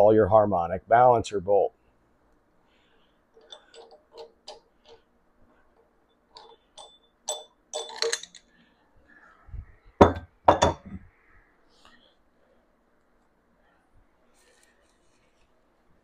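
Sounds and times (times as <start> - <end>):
metal tool clicking and clinking: 3.4 - 5.0, 6.3 - 8.5
metal clunk: 10.0 - 11.0.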